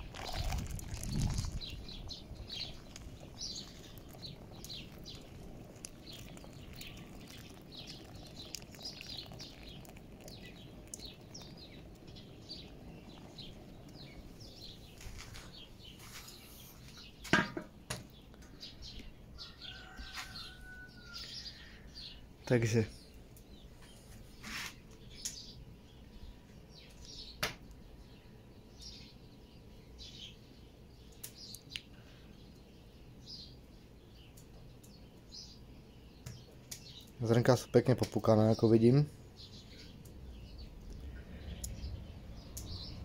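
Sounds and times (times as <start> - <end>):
small birds chirping: 0.0 - 43.0
low steady rumble: 39.1 - 43.0.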